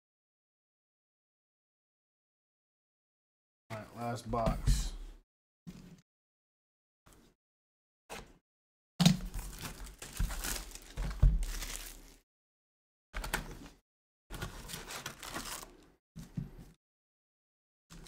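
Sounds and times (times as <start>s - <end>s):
wrapping tearing and crinkling: 9.3s - 12.2s, 14.4s - 15.9s.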